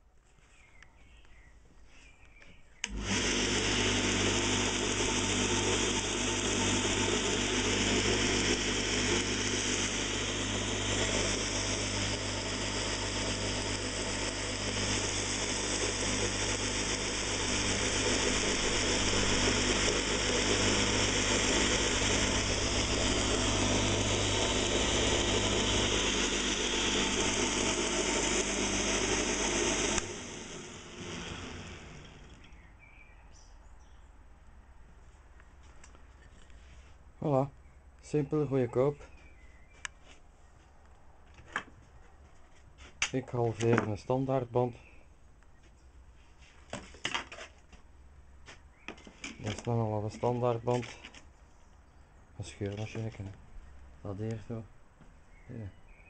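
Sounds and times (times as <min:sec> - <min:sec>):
belt sander running: 0:02.8 - 0:32.6.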